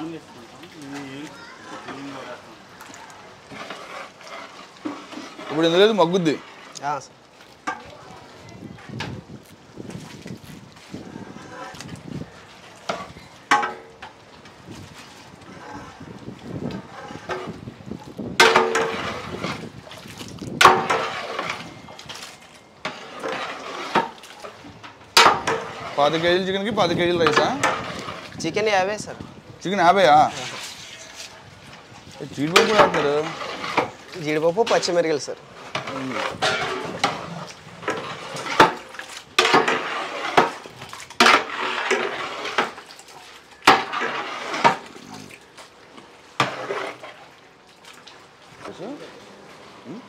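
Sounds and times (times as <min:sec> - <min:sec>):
ladle scraping in thick sauce: 0:00.4 - 0:07.1, 0:10.0 - 0:13.5, 0:14.6 - 0:28.7, 0:29.9 - 0:47.4
paddle knocking on metal pot: 0:18.4 - 0:19.0.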